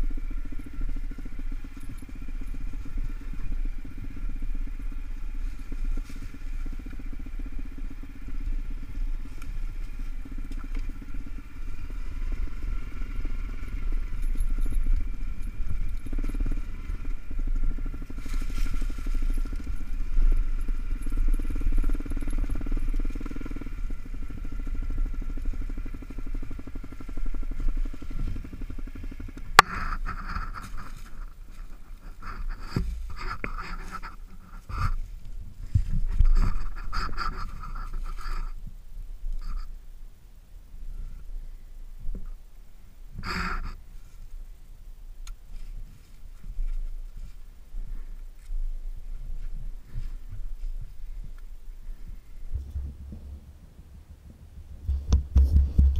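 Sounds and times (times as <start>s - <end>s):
dirt bike engine running: 0.0s - 39.8s, 43.1s - 44.2s, 45.3s - 55.9s.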